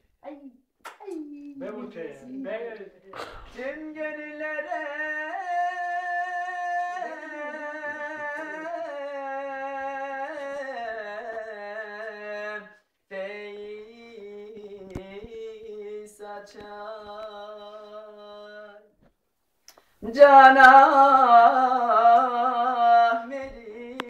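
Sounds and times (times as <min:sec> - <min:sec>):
man singing unaccompanied: 0:01.3 - 0:19.0, 0:20.0 - 0:24.0.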